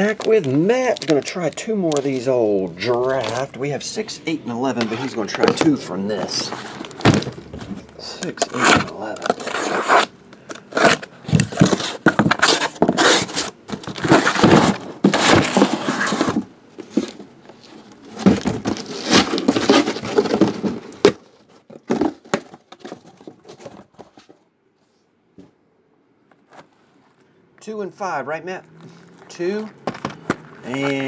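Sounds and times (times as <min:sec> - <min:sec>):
cardboard tearing and scraping: 0:04.8 - 0:10.1, 0:10.7 - 0:17.2, 0:18.2 - 0:21.1.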